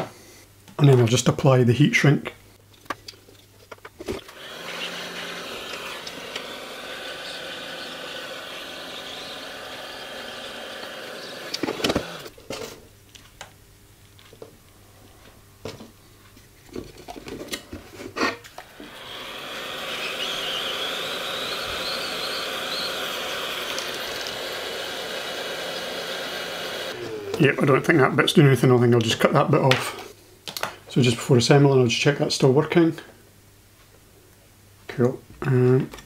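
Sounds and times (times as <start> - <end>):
heat gun blowing: 4.2 - 12.3, 18.6 - 27.4.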